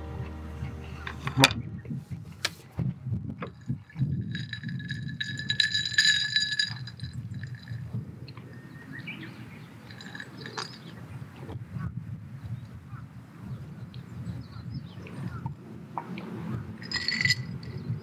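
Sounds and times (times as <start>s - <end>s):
drinking glass clinking: 3.5s - 7.8s, 9.8s - 11.0s, 16.8s - 17.9s.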